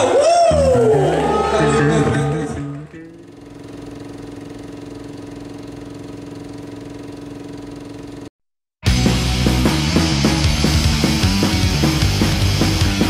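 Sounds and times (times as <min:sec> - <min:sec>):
buzzing electric amplifier hum: 0:01.3 - 0:08.3
rock music: 0:08.8 - 0:13.0.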